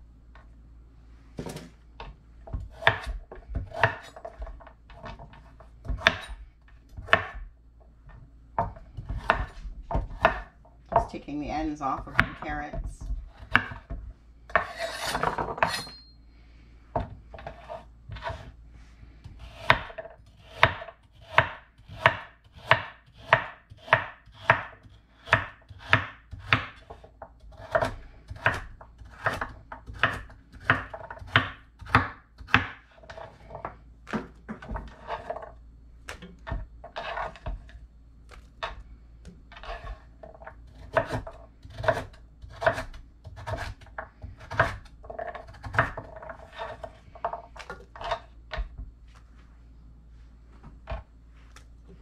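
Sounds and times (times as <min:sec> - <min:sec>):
knife slicing carrots on board: 0:02.6 - 0:06.4, 0:08.6 - 0:10.5, 0:13.1 - 0:13.9, 0:17.4 - 0:18.5, 0:19.3 - 0:33.5, 0:40.7 - 0:47.0.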